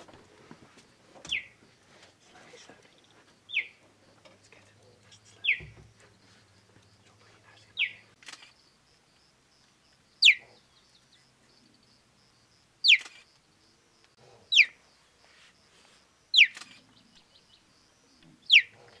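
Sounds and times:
young cheetah chirruping: 0:18.0 - 0:19.0.

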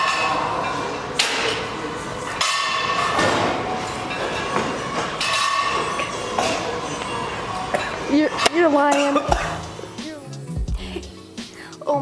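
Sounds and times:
metallic clanks of gym equipment: 0:00.0 - 0:07.1.

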